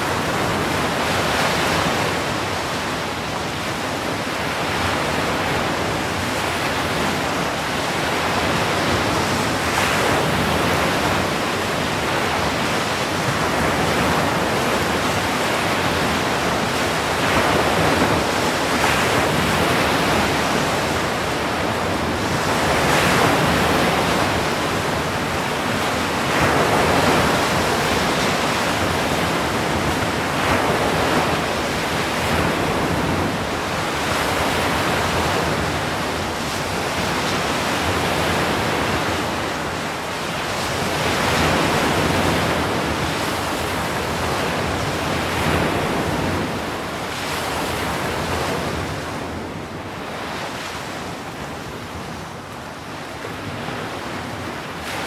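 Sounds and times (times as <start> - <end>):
ocean surf breaking: 0.0 - 55.0.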